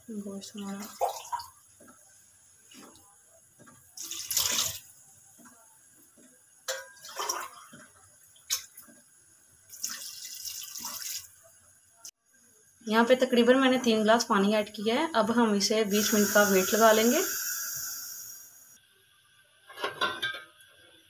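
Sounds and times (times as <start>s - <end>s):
water pouring into a pot: 0.8s - 1.7s, 3.9s - 5.1s, 6.8s - 8.8s, 9.6s - 11.6s, 15.9s - 18.4s.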